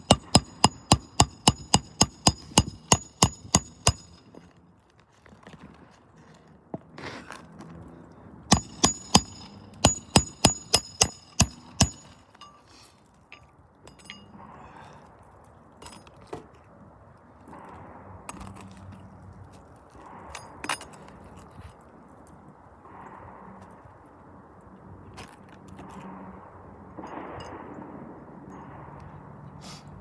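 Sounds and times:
hammer striking nails: 0.0s - 4.4s, 8.5s - 12.2s.

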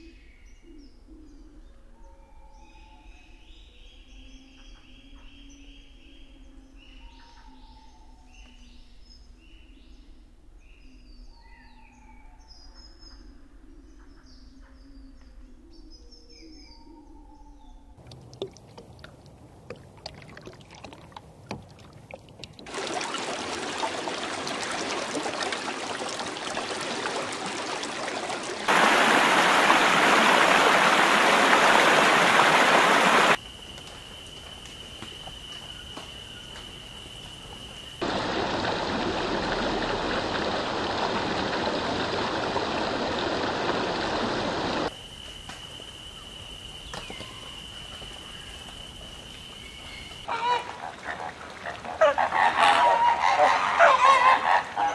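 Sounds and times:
rushing water noise: 18.0s - 33.4s, 38.0s - 44.9s.

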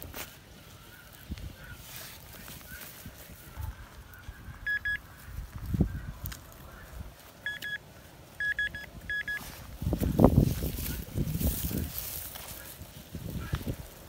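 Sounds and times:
metal detector short high beeps: 4.7s - 5.0s, 7.5s - 7.8s, 8.4s - 9.4s.

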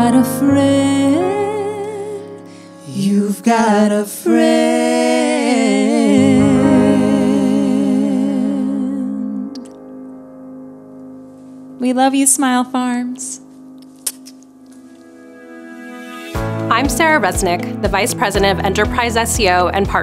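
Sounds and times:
man and woman singing duet: 0.0s - 9.6s
piano accompaniment: 0.0s - 20.0s.

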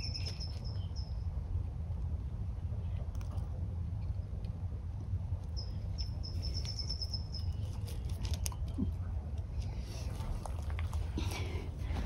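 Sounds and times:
low background rumble: 0.0s - 12.0s.

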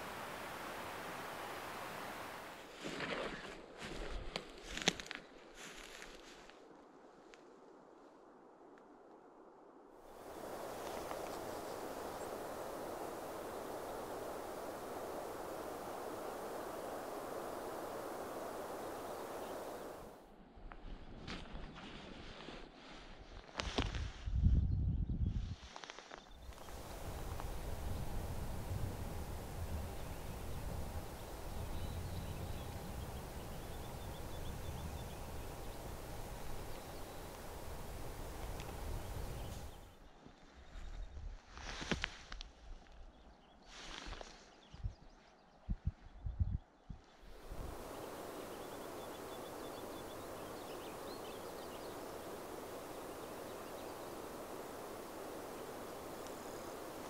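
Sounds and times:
outdoor background hiss: 0.0s - 3.9s, 4.6s - 20.6s, 25.8s - 40.2s, 47.1s - 57.0s.

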